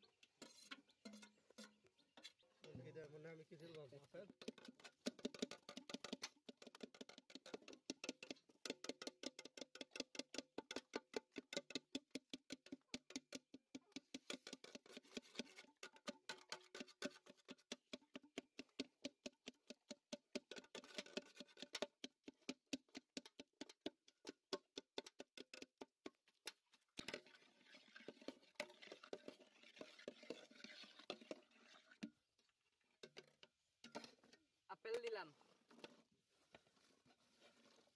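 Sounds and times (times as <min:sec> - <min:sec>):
scraping stirring in metal pot: 0:00.0 - 0:02.4, 0:04.2 - 0:09.9, 0:14.1 - 0:18.8, 0:20.5 - 0:23.0, 0:27.0 - 0:32.2.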